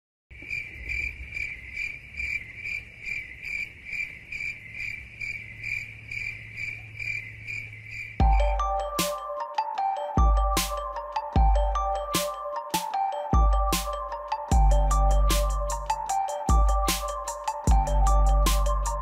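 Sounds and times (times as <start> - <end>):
insect chirping: 0.3 - 9.5
electronic music: 8.2 - 19.0.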